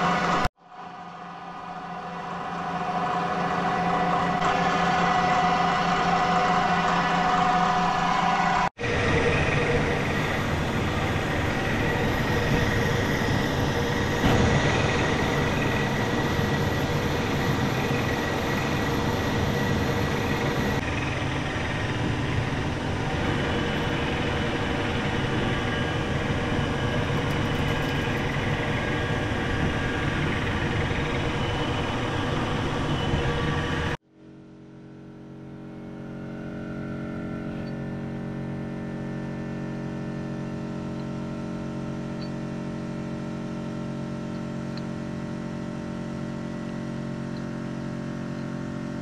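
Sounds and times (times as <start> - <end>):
metal lathe running: 2.9 - 34.0.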